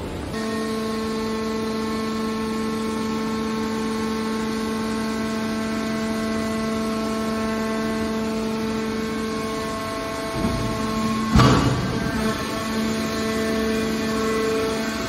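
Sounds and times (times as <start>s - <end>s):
hydraulic pump humming and whining: 0.0s - 15.0s.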